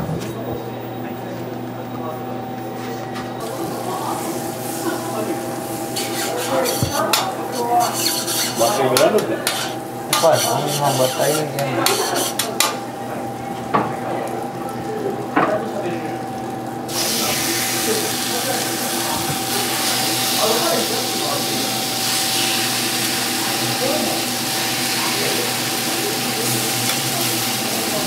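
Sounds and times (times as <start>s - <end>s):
metal utensils scraping pots: 6.0s - 12.6s.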